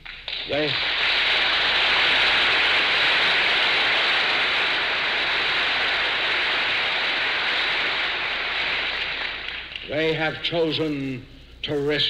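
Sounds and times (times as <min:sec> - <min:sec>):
crowd applauding: 0:00.0 - 0:10.2.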